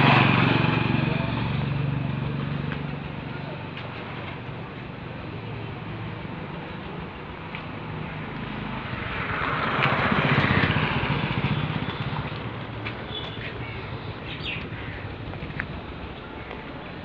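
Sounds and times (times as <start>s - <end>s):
vehicle passing by: 0.0s - 3.0s, 8.2s - 16.2s.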